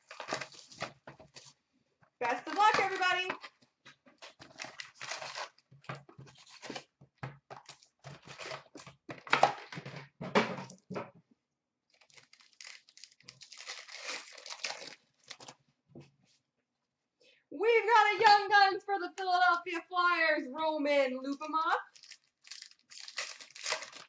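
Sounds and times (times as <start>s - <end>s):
paper and card packs rustling: 0.0s - 1.6s, 2.2s - 7.0s, 7.6s - 10.0s, 12.0s - 15.6s, 21.9s - 24.0s.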